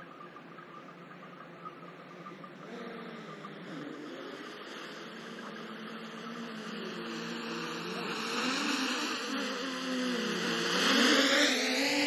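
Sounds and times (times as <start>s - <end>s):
drone propellers buzzing: 2.4s - 12.0s.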